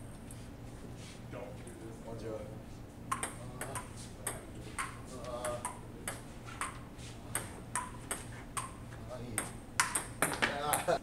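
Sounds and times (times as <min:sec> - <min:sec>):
low steady hum: 0:00.0 - 0:11.0
ping pong ball clicking: 0:03.1 - 0:08.8, 0:09.4 - 0:10.9.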